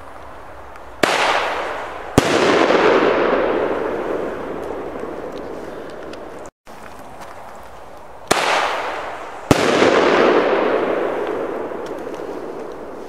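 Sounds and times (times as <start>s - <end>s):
firework bangs: 1.0s - 6.5s, 8.3s - 13.0s.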